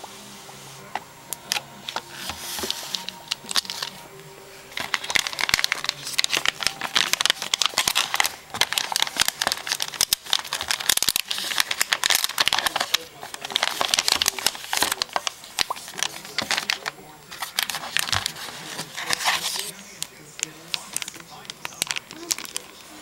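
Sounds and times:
packaging wrap crinkling: 0:00.0 - 0:23.0.

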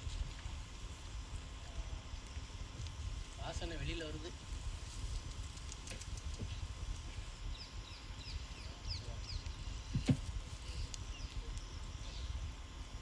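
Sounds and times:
steady low rumble: 0:00.0 - 0:13.0
bird chirping: 0:07.5 - 0:10.0.

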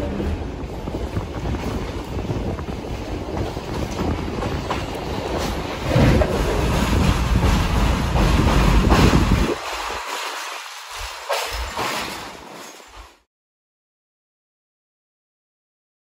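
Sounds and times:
wind buffeting microphone: 0:00.0 - 0:09.7
train wheels rumbling on rails: 0:00.0 - 0:13.2.

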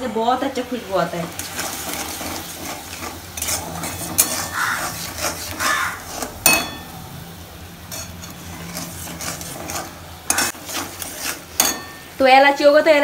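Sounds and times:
syrup boiling: 0:00.4 - 0:12.4
spatula scraping metal pan: 0:01.2 - 0:07.0, 0:07.8 - 0:12.2.

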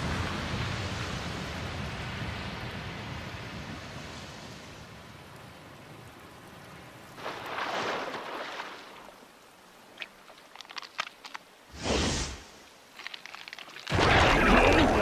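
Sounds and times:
water churning: 0:07.2 - 0:15.0.

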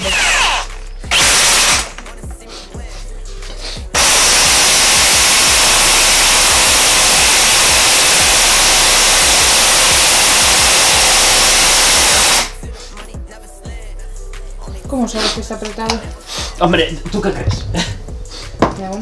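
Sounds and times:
electric impact wrench hammering: 0:00.0 - 0:02.4, 0:04.0 - 0:12.7.

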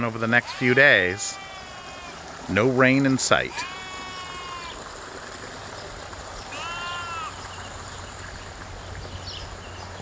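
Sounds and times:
goat bleating: 0:00.2 - 0:02.2, 0:03.5 - 0:04.8, 0:06.5 - 0:07.4.

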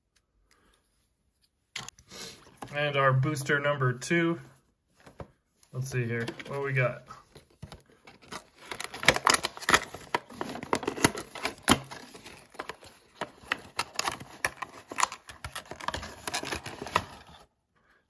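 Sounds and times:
cardboard box tearing: 0:08.2 - 0:17.2.

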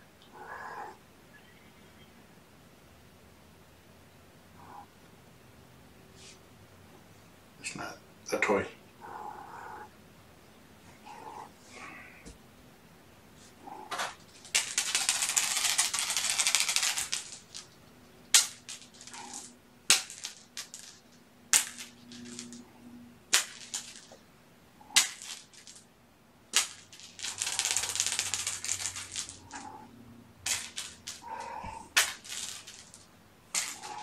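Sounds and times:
crinkling and crackling: 0:13.4 - 0:22.7, 0:26.5 - 0:34.0.

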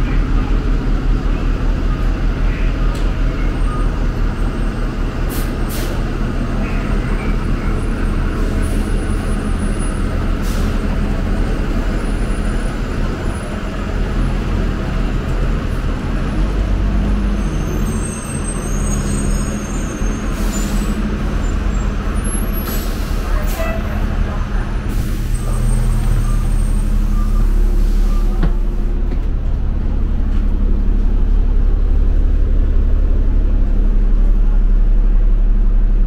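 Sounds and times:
bus engine droning: 0:00.0 - 0:36.0
air brake hisses: 0:05.3 - 0:06.0, 0:10.4 - 0:10.8, 0:24.9 - 0:25.8, 0:27.2 - 0:28.4.

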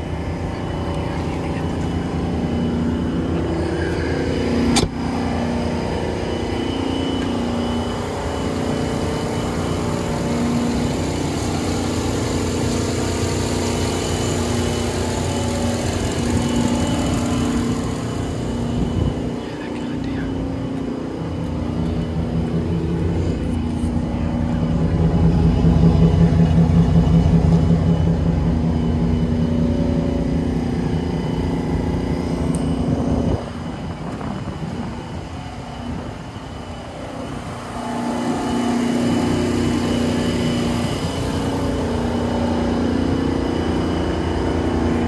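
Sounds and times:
pickup engine idling: 0:00.0 - 0:45.0.

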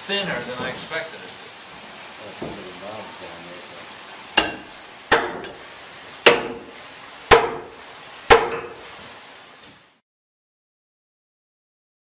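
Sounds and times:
low steady hiss: 0:00.0 - 0:10.0
tool striking metal with ringing: 0:04.4 - 0:05.6, 0:06.2 - 0:06.7, 0:07.3 - 0:07.7, 0:08.3 - 0:08.8.

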